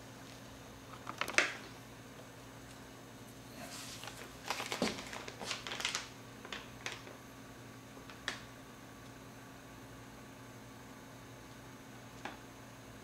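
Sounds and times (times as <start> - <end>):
faint steady hum: 0.0 - 13.0
paper rustling and crinkling: 3.7 - 7.1.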